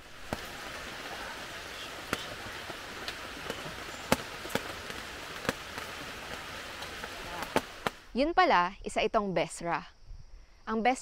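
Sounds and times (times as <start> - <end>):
steady hiss: 0.0 - 8.2.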